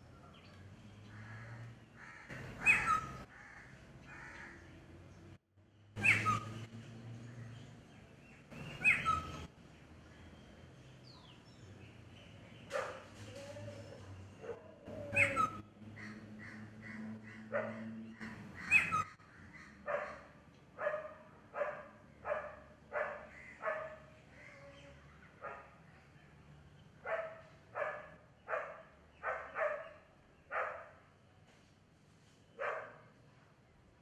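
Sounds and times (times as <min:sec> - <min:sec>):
dog barking: 0:12.7 - 0:13.1, 0:14.4 - 0:15.4, 0:17.5 - 0:17.9, 0:19.8 - 0:24.1, 0:27.0 - 0:31.0, 0:32.6 - 0:33.1
sharp high dog calls: 0:17.3 - 0:17.9.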